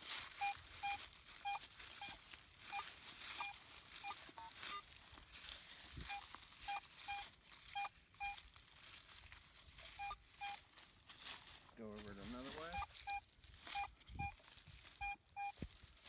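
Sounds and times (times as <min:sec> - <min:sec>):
dry grass brushed by coil: 0:00.0 - 0:16.0
metal detector short beeps: 0:00.1 - 0:08.5, 0:09.8 - 0:10.7, 0:12.3 - 0:15.7.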